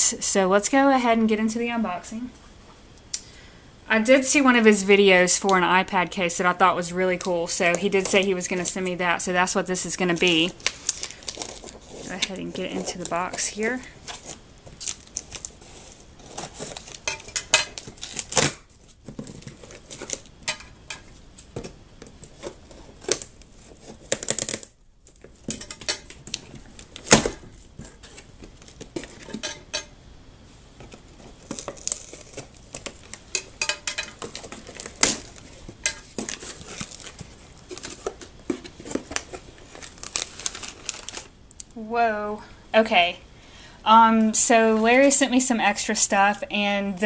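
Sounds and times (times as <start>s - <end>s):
packing paper rustling: 9.8s - 29.6s, 30.6s - 41.4s
scissors cutting packing tape: 16.2s - 18.6s, 23.0s - 24.7s.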